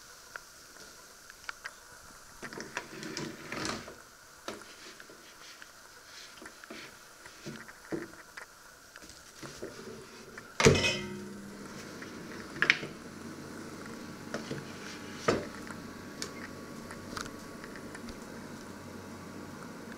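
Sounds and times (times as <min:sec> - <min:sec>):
steady low hiss: 0:00.0 - 0:19.9
oven door clunk: 0:10.6 - 0:11.4.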